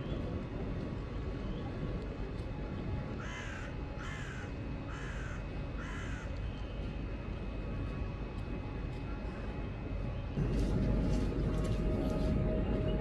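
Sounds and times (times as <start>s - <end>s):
low background noise: 0.0s - 13.0s
crow cawing: 3.2s - 6.3s.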